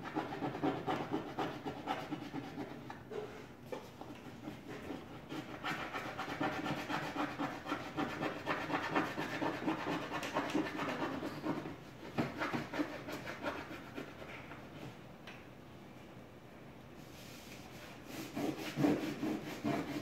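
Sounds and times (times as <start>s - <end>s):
crayon scribbling on board: 0.0s - 2.8s, 4.3s - 14.3s, 18.1s - 20.0s.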